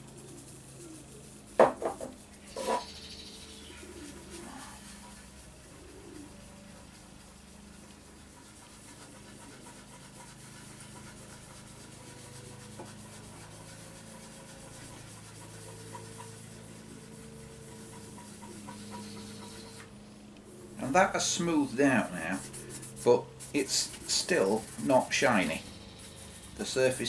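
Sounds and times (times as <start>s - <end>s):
cloth rubbing on plastic: 21.2s - 27.0s.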